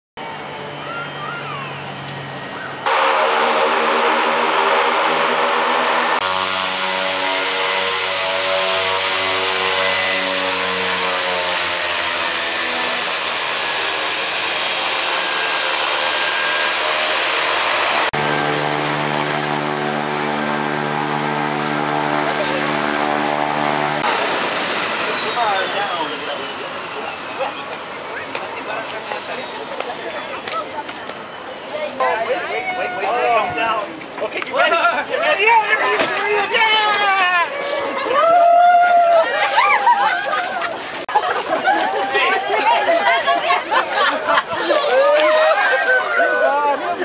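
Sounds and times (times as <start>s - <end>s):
high turbine whine: 0.2s - 32.0s
propeller drone: 0.2s - 32.0s.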